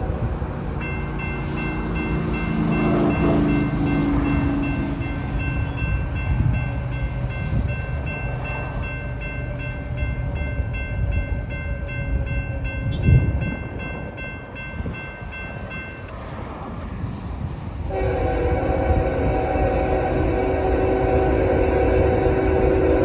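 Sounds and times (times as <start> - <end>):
railroad crossing bell ringing: 0.0 - 16.3
freight train rumble: 0.0 - 23.0
train horn blast: 2.5 - 5.0, 17.9 - 23.0.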